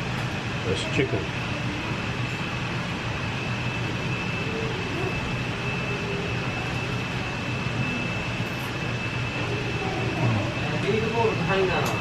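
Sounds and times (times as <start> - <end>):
high whine: 0.0 - 12.0
ventilation fan hum: 0.0 - 12.0.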